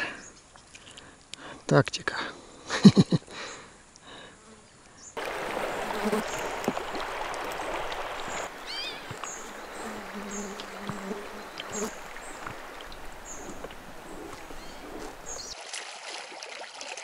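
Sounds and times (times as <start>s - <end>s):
birds chirping: 4.6s - 15.6s
river water flowing: 5.2s - 17.0s.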